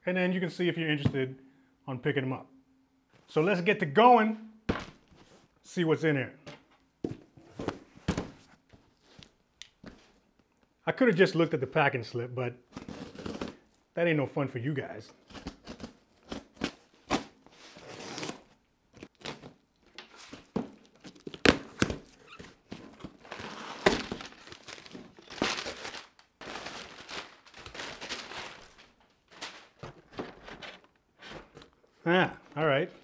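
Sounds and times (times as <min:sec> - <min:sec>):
tape tearing: 0:12.7 - 0:13.7, 0:15.2 - 0:29.8
cardboard flaps crinkling: 0:15.2 - 0:33.0.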